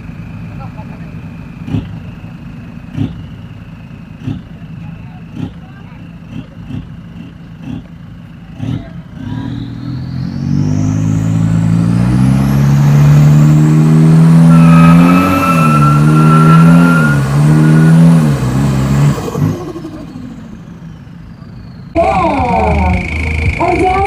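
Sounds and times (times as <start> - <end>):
diesel engine revving: 0.0 - 24.0
turbo whistle: 14.4 - 18.2.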